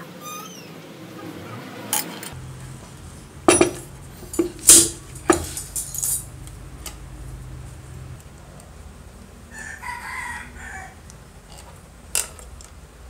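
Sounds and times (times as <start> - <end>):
metal parts clinking on stone: 3.5 - 7.0.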